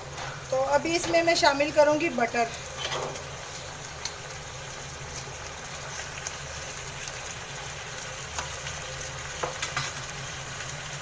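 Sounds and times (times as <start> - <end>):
chicken sizzling in a pan: 0.0 - 11.0.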